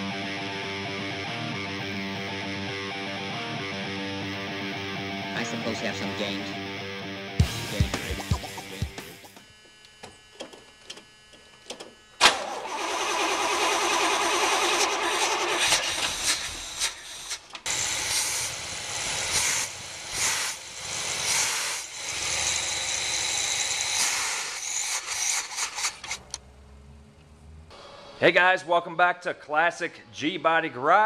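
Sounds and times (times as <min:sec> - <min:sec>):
car engine starting and revving: 0:12.2 - 0:16.5, 0:25.2 - 0:28.2.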